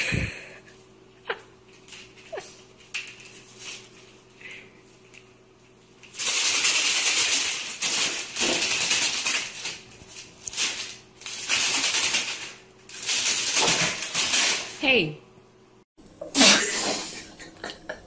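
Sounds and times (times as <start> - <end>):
paper rustling and crinkling: 1.7 - 14.8.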